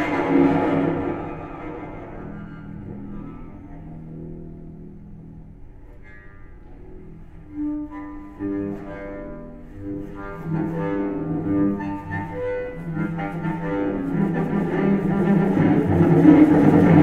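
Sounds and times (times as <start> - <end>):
bowed cello notes: 0.0 - 17.0.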